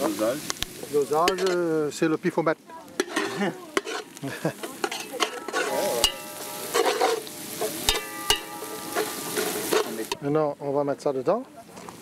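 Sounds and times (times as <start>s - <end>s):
onions sizzling in hot oil: 0.0s - 12.0s
metal ladle scraping and knocking pot: 1.2s - 1.6s, 3.0s - 10.2s.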